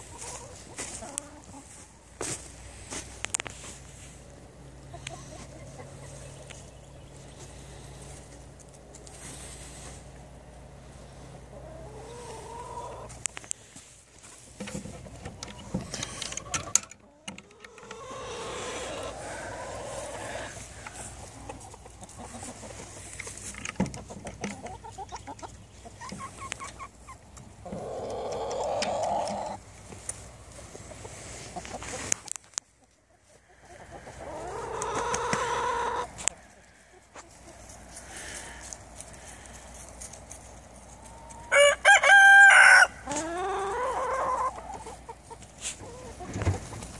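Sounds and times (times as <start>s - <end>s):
hens clucking: 0.0s - 46.9s
rooster crowing: 17.8s - 20.5s, 41.5s - 44.4s.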